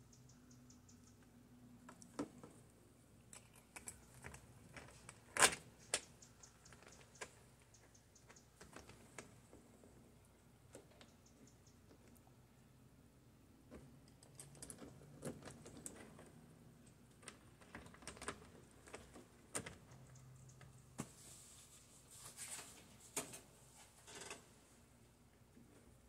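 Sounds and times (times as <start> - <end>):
rustling: 20.9 - 24.8.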